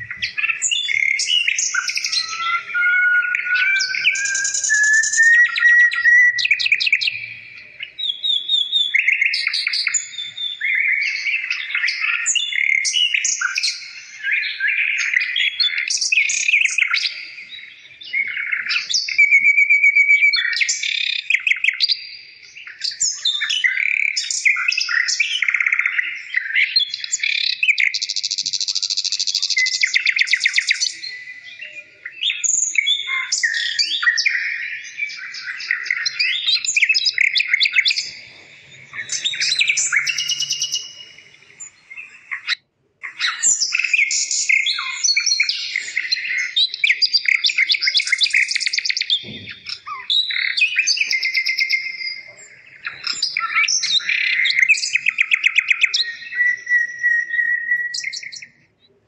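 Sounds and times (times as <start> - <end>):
songbird singing: 0.0 - 59.0.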